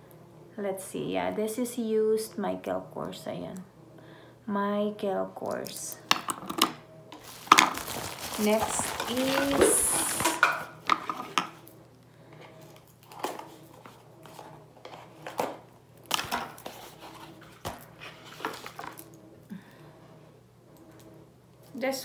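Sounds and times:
cardboard box being opened: 7.2 - 10.5.

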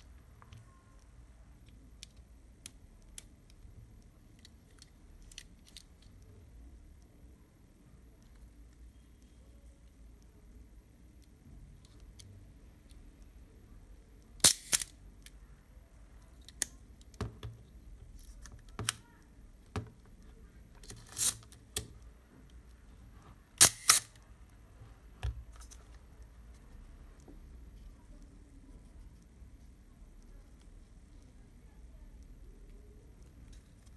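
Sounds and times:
camera shutter clicks: 23.6 - 24.2.

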